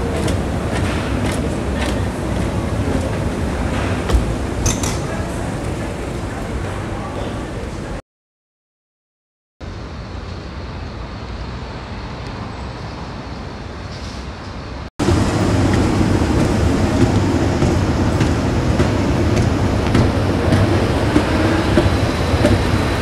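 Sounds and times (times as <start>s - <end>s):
escalator humming and rattling: 0.0s - 8.0s, 14.4s - 23.0s
ambient rumble: 15.0s - 23.0s.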